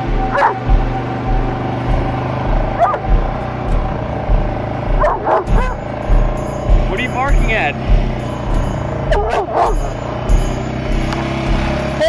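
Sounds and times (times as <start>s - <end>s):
vehicle engine running: 0.0s - 12.0s
dog barking: 0.3s - 0.7s, 2.7s - 3.1s, 5.0s - 5.9s, 9.1s - 10.0s.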